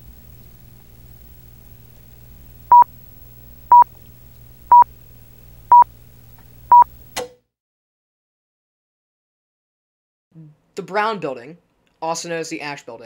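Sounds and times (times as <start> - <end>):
low hum: 0.0 - 7.2.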